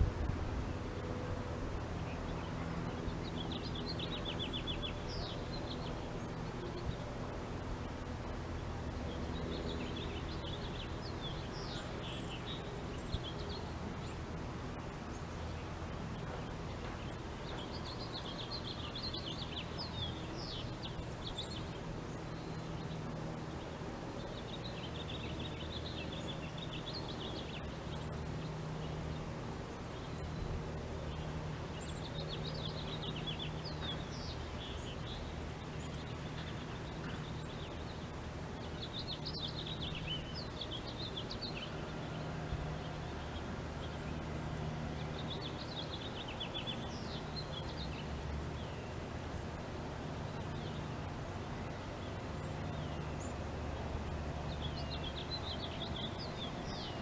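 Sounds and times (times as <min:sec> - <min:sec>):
steady low hum: 0:00.0 - 0:57.0
songbird twittering: 0:16.2 - 0:23.2, 0:54.4 - 0:57.0.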